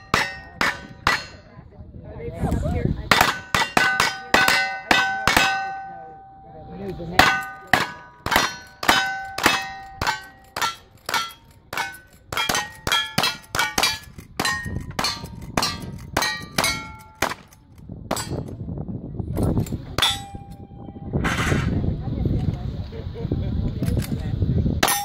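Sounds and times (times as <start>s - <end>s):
steel target ringing clang: 0.0s - 1.5s, 3.1s - 17.5s, 18.1s - 18.5s, 20.0s - 21.8s.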